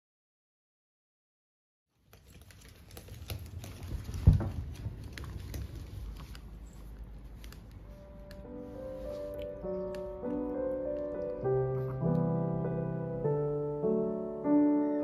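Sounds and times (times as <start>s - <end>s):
rustling on a lap: 2.0s - 12.3s.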